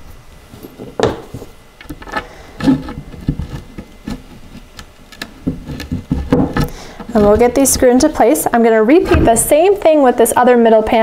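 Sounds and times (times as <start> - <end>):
wooden panel knocking and rubbing: 2.6 - 8.1.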